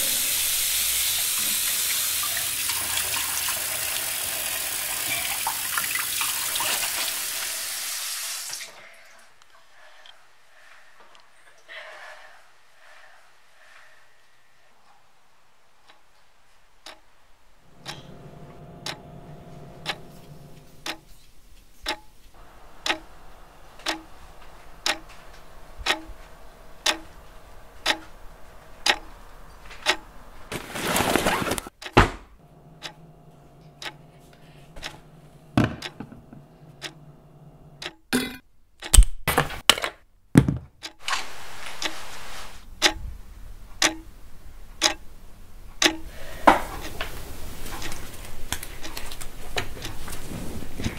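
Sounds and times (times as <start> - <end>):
steady hum: 17.6 - 21.1, 22.4 - 30.5, 32.3 - 38.4
clock ticking loudly: 17.7 - 21.0, 21.9 - 22.1, 22.7 - 27.2, 27.8 - 28.1, 28.8 - 29.2, 29.8 - 30.1, 31.8 - 38.1, 42.8 - 43.0, 43.8 - 44.1, 44.8 - 45.0, 45.8 - 46.2.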